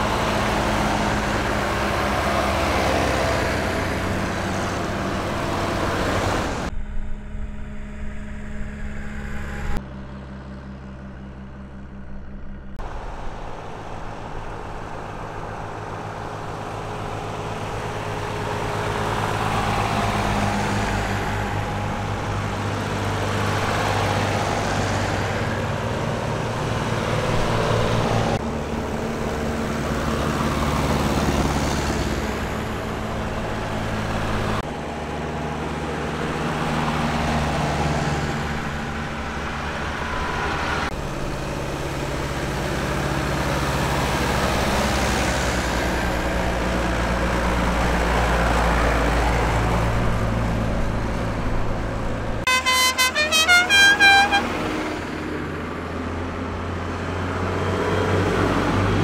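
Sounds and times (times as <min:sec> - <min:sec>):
tractor engines running: 0:00.0 - 0:59.0
horn playing short notes: 0:52.5 - 0:54.6.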